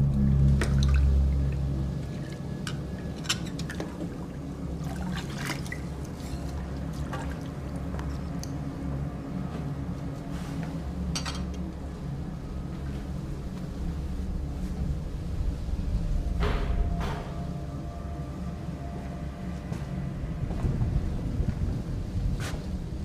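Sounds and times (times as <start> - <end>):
low steady rumble: 0.0 - 23.0
water pouring and sloshing: 0.4 - 9.0
clinks and knocks: 11.2 - 11.6.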